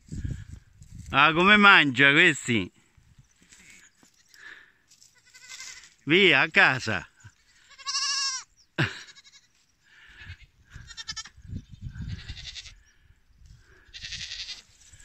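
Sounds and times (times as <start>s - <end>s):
scuffling among stones and brush: 0.0s - 1.4s, 2.9s - 6.1s, 14.4s - 15.0s
young goats bleating: 3.5s - 6.0s, 6.8s - 12.9s, 13.6s - 15.0s.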